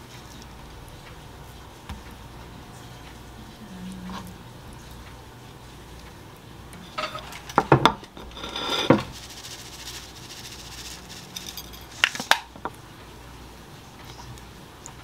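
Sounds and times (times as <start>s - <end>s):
dishes clinking: 6.8s - 9.1s
grinder bottle grinding: 8.2s - 11.9s.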